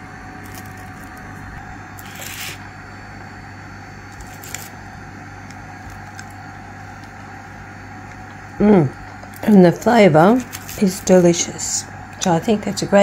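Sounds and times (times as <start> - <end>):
low background hum: 0.0 - 13.0
bread scraping on baking paper: 2.0 - 2.6.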